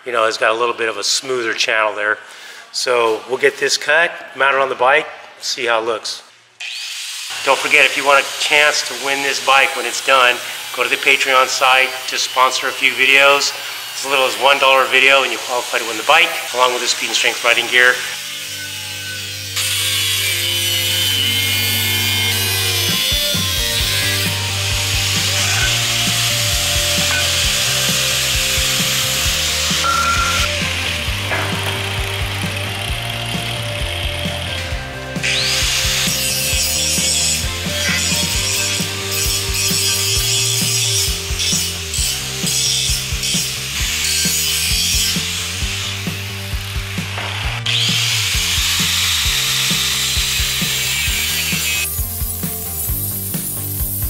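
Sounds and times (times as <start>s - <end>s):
angle grinder cutting steel: 6.6s - 54.0s
background music with beat: 22.3s - 44.0s, 51.7s - 54.0s.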